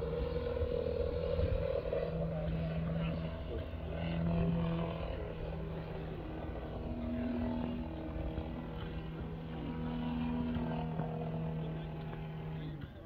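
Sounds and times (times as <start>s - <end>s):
propeller plane engine droning: 0.0s - 13.0s.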